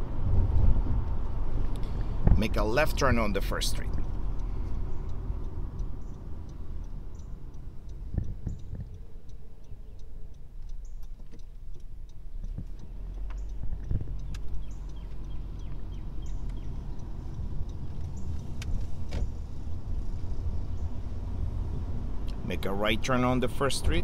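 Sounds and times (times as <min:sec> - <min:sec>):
car engine and road rumble: 0:00.0 - 0:24.0
turn-signal indicator clicking: 0:03.9 - 0:21.0.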